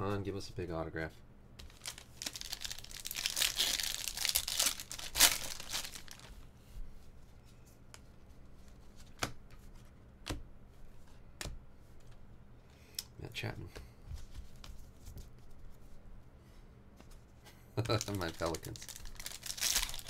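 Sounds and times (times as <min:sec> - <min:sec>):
wrapper tearing and crinkling: 0:01.7 - 0:06.3, 0:17.8 - 0:20.0.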